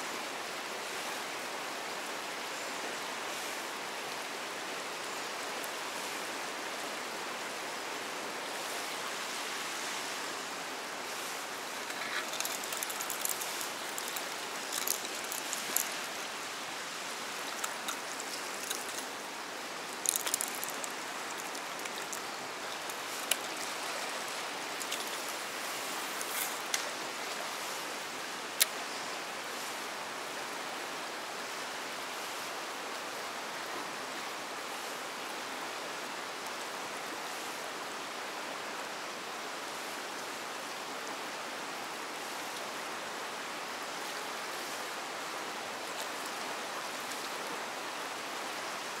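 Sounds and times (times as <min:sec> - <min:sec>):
river water rushing over rock: 0:00.0 - 0:49.0
rustles: 0:08.6 - 0:29.9.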